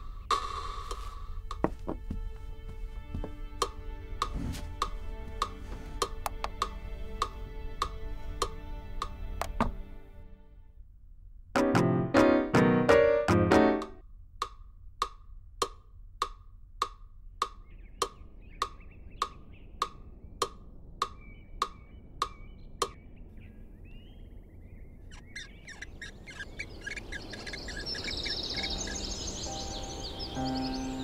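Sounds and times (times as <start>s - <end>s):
outdoor ambience: 0.0s - 12.4s, 13.3s - 31.0s
metronome ticking: 11.6s - 23.0s
faint birdsong: 17.3s - 31.0s.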